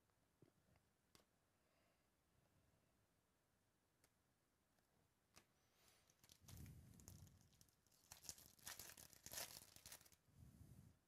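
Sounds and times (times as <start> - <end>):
foil wrapper tearing: 6.1 - 10.2.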